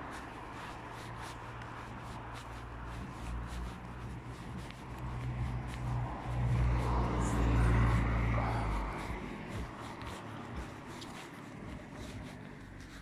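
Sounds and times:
car driving past: 5.2 - 9.7.

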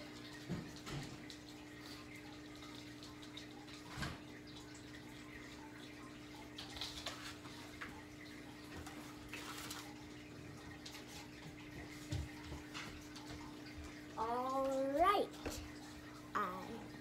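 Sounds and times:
faint rustles and clicks: 8.8 - 10.2.

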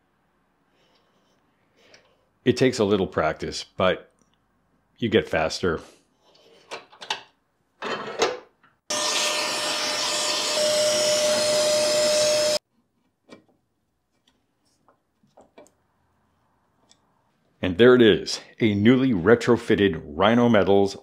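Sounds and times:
small electric motor whirring: 8.9 - 12.6.

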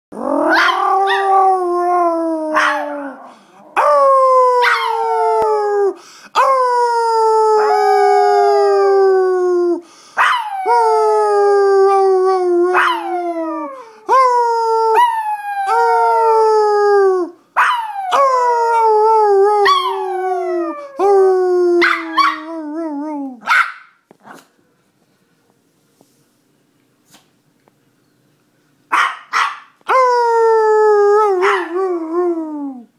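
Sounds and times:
dog howling: 0.2 - 5.9, 7.4 - 9.2, 10.2 - 13.8, 17.7 - 23.4, 30.2 - 32.9.

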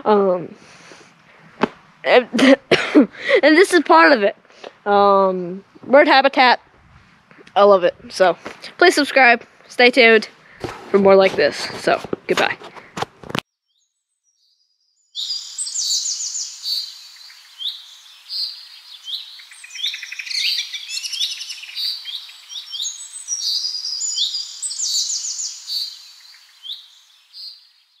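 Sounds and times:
songbirds chirping and singing: 15.1 - 28.0.

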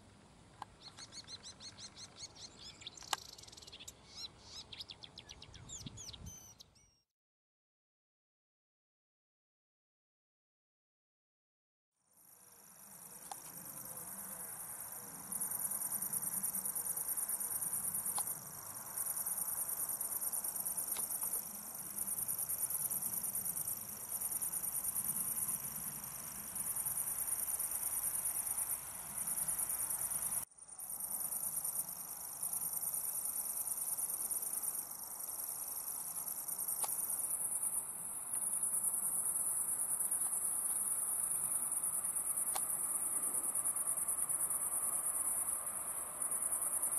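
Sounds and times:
bird reeling trill: 0.8 - 7.0.

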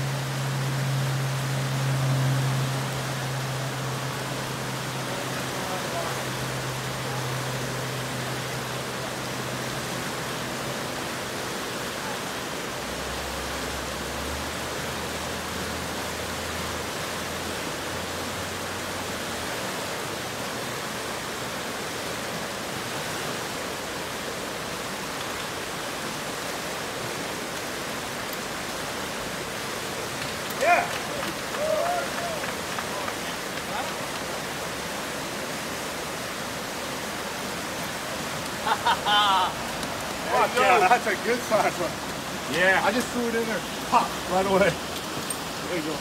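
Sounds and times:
creek water rushing through rapids: 0.0 - 46.0.

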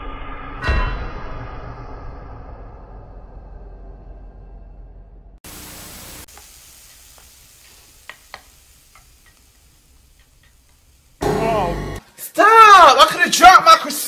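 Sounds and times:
food sizzling in a pan: 5.4 - 12.0
loud hiss: 5.4 - 12.0
low music cue: 11.2 - 12.0.

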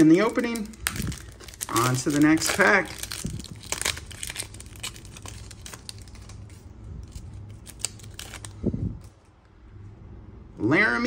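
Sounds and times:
plastic wrapper crinkling: 0.0 - 9.4.

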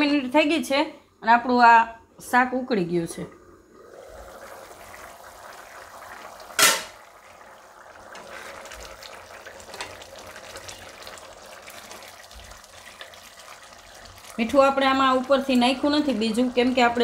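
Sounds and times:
curry bubbling in a pan: 3.6 - 17.0.

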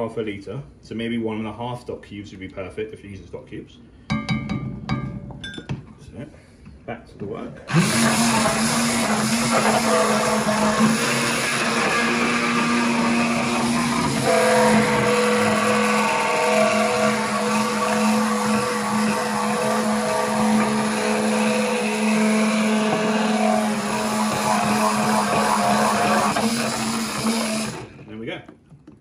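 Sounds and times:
immersion blender motor whine: 7.7 - 28.0
soup churning: 7.7 - 28.0.

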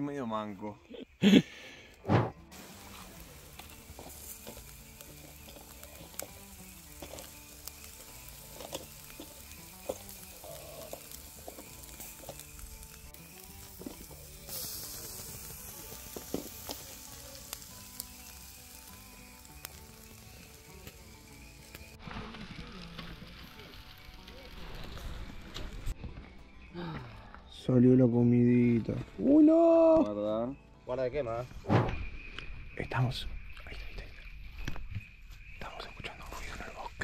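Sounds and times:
loud thumps: 2.0 - 2.5, 31.6 - 32.1
soft background music: 2.0 - 34.0, 35.4 - 37.0
food sizzling in a pan: 2.5 - 25.4.

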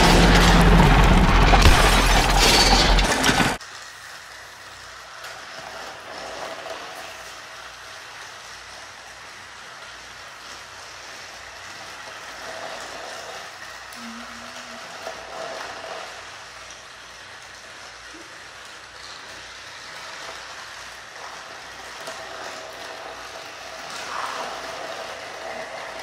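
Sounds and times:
loud noise cutting off: 0.0 - 3.4
toy trains whirring: 0.0 - 26.0.

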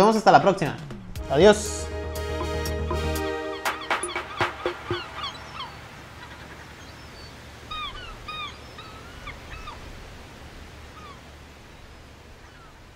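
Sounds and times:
short chirping animal calls: 3.4 - 9.8.

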